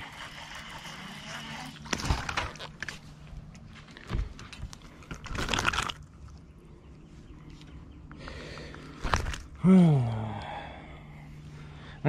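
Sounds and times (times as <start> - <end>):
faint steady hum: 0.0 - 12.0
fish scuffling: 4.8 - 6.3.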